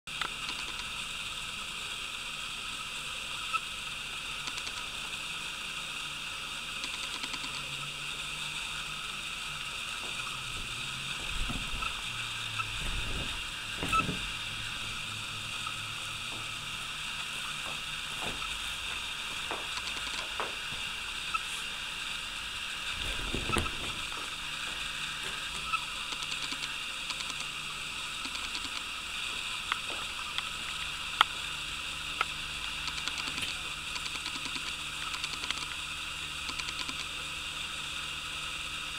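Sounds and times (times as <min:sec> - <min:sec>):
high-pitched drone: 0:06.8 - 0:18.6.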